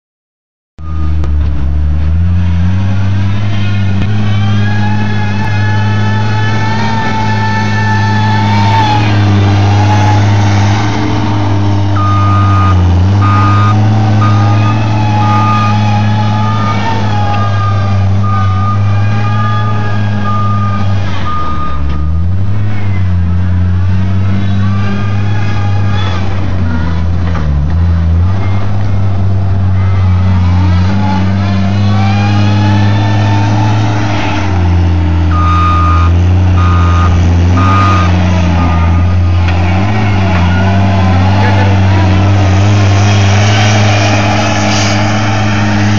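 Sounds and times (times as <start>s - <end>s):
diesel engine running hard: 0.8s - 45.9s
backup alarm beeping: 12.0s - 15.8s, 19.6s - 22.2s, 35.3s - 39.1s.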